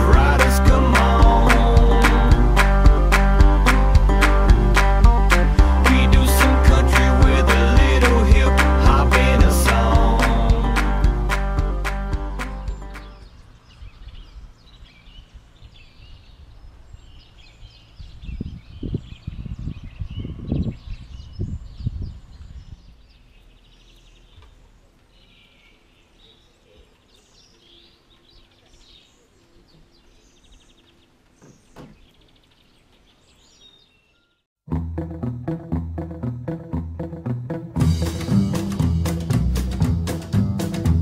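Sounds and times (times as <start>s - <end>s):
songbirds chirping and singing: 0.0s - 11.4s, 12.3s - 34.5s
wind buffeting microphone: 15.6s - 23.0s.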